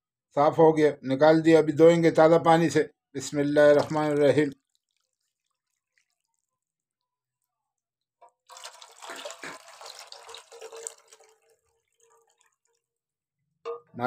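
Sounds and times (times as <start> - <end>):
water pouring and splashing into wok: 3.7 - 7.5, 8.2 - 13.4.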